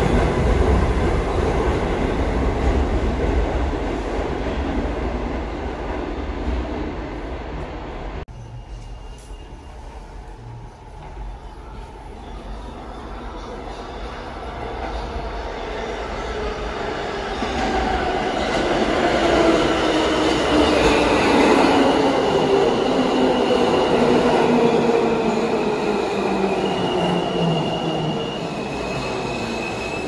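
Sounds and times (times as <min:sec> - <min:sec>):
subway train rumble: 0:00.0 - 0:30.0
wheel and brake squeals: 0:08.3 - 0:10.2.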